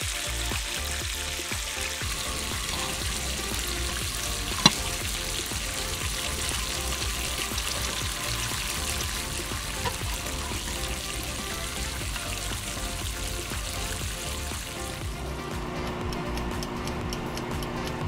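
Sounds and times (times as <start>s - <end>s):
food sizzling in oil: 0.0s - 16.3s.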